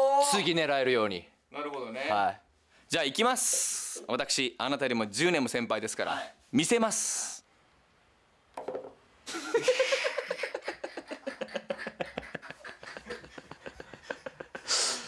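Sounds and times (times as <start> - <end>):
man laughing in rapid pulses: 9.3 - 14.8.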